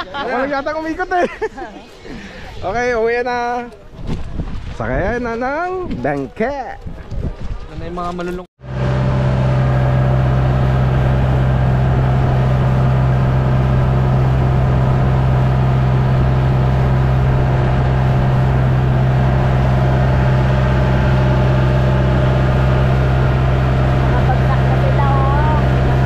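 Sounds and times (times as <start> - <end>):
boat engine droning: 8.6 - 26.0.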